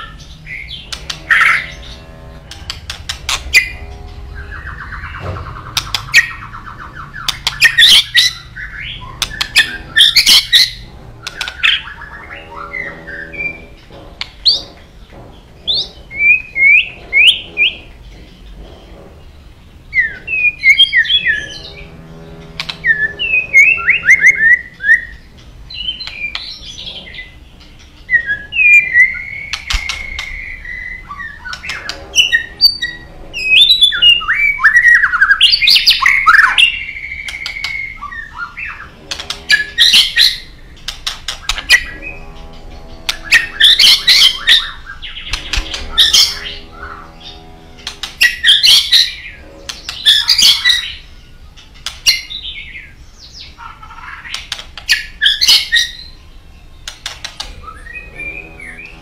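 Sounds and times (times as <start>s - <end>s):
songbird whistling and chattering: 56.8s - 59.0s.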